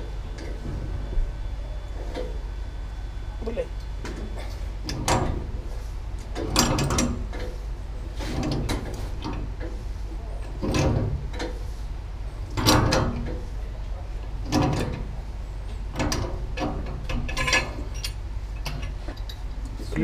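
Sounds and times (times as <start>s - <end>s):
steady low hum: 0.0s - 20.0s
pipe wrench rasping metal clatter: 16.0s - 19.4s.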